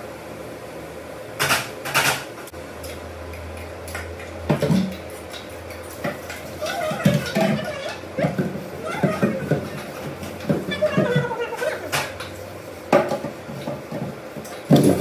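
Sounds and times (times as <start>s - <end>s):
metal ladle scraping cooking pots: 6.2s - 12.6s.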